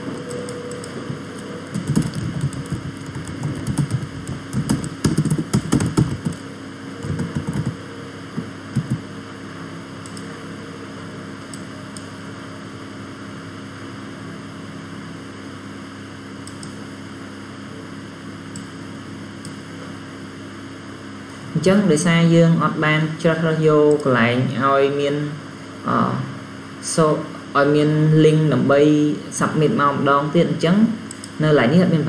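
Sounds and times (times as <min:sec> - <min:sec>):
low electrical hum: 0:00.0 - 0:32.0
keyboard and mouse clicks: 0:00.2 - 0:06.4, 0:07.0 - 0:07.8, 0:08.4 - 0:09.0, 0:10.0 - 0:10.3, 0:16.4 - 0:16.8.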